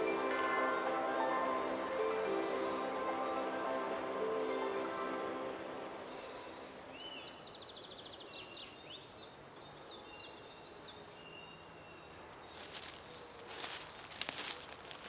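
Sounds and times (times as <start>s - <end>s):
birds singing: 0.0s - 15.0s
footsteps on dry forest floor: 12.1s - 15.0s.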